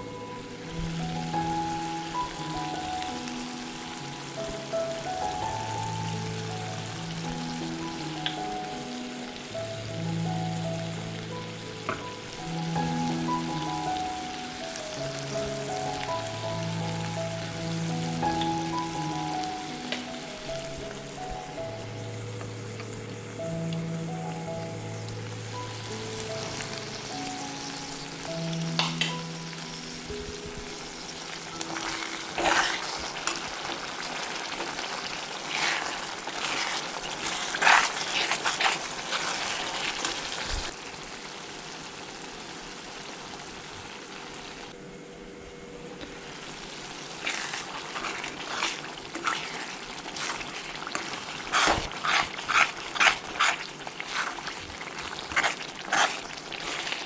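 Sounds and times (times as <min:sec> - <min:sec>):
soft background music: 0:00.0 - 0:40.8, 0:44.9 - 0:57.0
sauce sizzling in oil: 0:00.0 - 0:44.8, 0:46.1 - 0:57.0
metal spoon scraping pan: 0:32.3 - 0:33.4, 0:47.2 - 0:54.5, 0:55.1 - 0:57.0.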